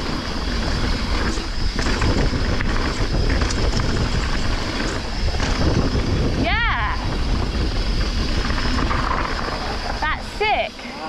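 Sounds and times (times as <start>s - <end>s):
tyres rolling over stones: 0.0s - 6.4s, 7.0s - 10.4s
wind buffeting microphone: 0.0s - 10.8s
bike knocking over bumps: 0.1s - 6.4s.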